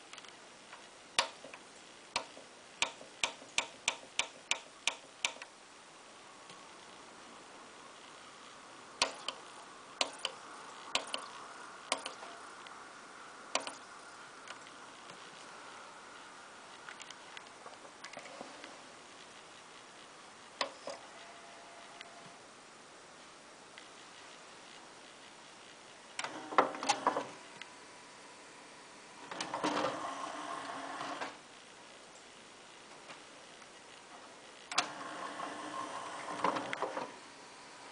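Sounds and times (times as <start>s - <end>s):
faint steady hum: 0.0s - 37.9s
cd tray motor whirring: 20.6s - 22.4s, 26.2s - 31.4s, 34.7s - 37.9s.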